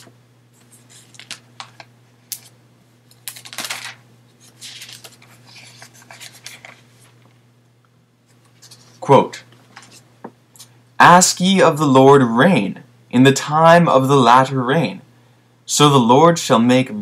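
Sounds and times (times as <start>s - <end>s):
paper rustling and pages turning: 0.0s - 7.4s, 8.3s - 10.0s
low electrical hum: 0.0s - 17.0s.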